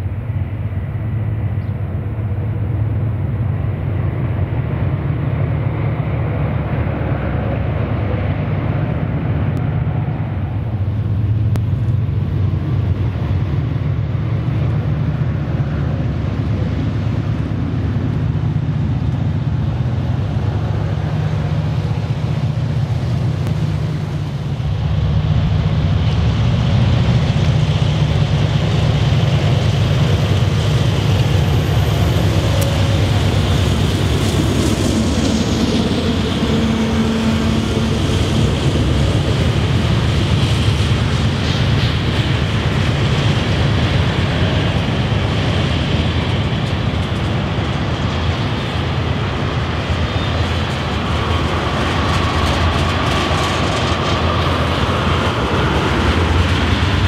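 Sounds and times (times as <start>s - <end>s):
diesel locomotive engine working hard: 0.0s - 57.0s
steel wheels clattering over rails: 14.2s - 57.0s.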